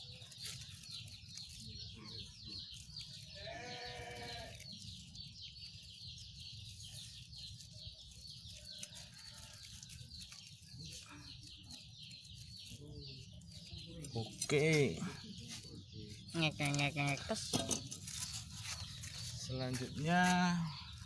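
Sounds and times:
wavering bleat-like animal call: 3.4 - 4.6.

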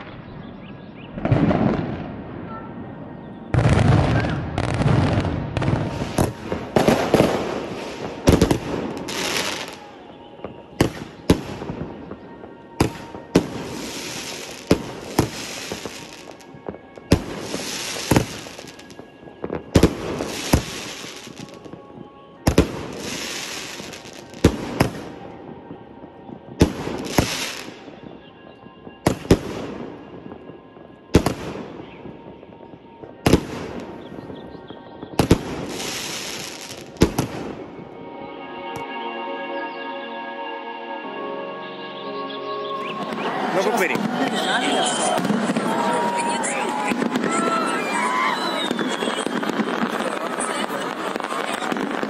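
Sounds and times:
fireworks bangs: 0.0 - 38.0, 42.8 - 52.0
crackling sparks hissing: 12.8 - 19.0, 19.8 - 21.6, 35.2 - 37.3, 44.1 - 52.0.

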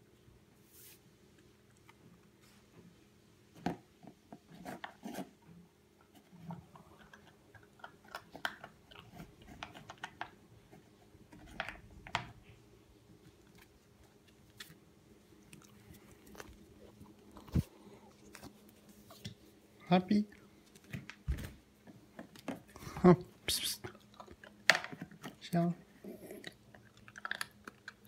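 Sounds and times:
puppy chewing food: 6.1 - 11.2, 13.1 - 19.6, 23.8 - 28.0.

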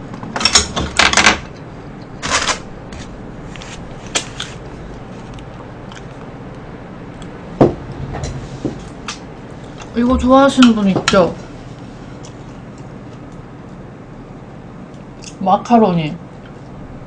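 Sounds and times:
food rustling and scraping: 2.9 - 6.2.

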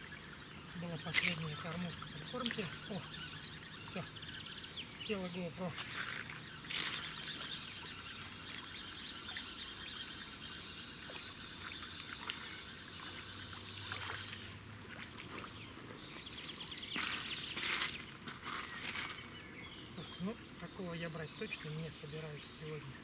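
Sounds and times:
faint trickling water: 0.0 - 9.6.

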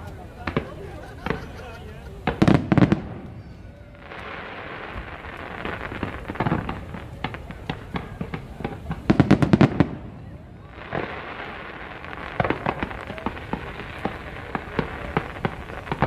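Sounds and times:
fireworks bangs: 0.0 - 16.0
fireworks crackling: 0.0 - 16.0.

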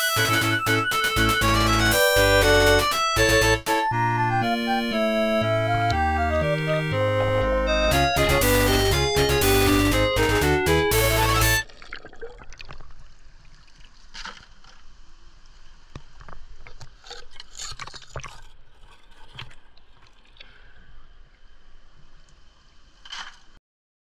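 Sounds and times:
stream water sloshing and gurgling: 11.6 - 15.1, 15.9 - 20.6.

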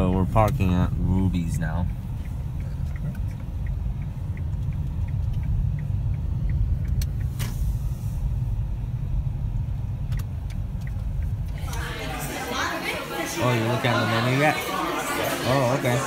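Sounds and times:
faint regular ticking: 0.0 - 7.7, 8.3 - 11.8
car engine and tyres rumbling: 0.0 - 16.0
short hiss: 7.3 - 8.4.

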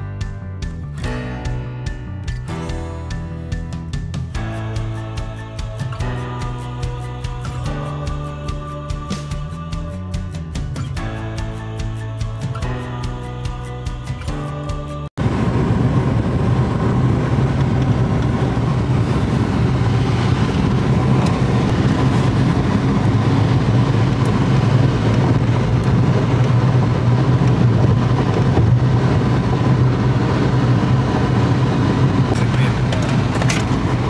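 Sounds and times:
car engine and road noise drone: 0.0 - 34.0.

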